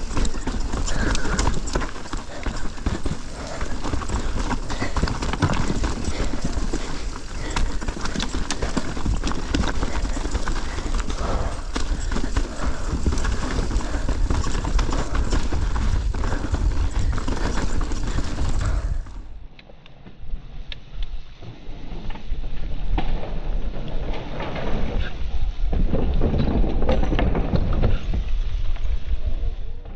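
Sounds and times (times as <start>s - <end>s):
mountain bike rattling over rocks: 0.0s - 19.4s, 22.9s - 29.3s
steady rumble: 0.0s - 19.4s.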